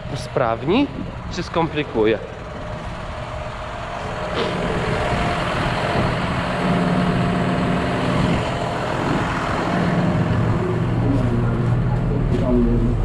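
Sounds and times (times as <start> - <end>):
tractor diesel engine idling: 0.0 - 13.0
deep low rumble: 2.2 - 13.0.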